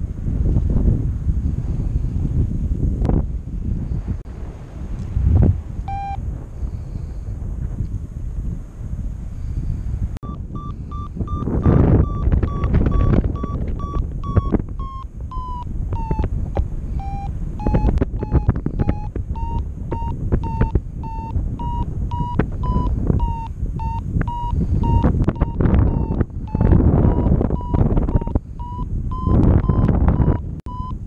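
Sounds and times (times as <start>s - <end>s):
wind on microphone: 0.0s - 31.0s
variometer beeping: 5.9s - 6.2s, 10.2s - 31.0s.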